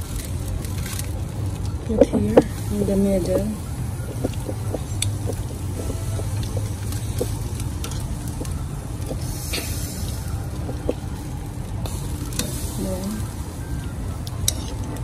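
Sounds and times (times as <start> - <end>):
meat sizzling on grill: 0.0 - 15.0.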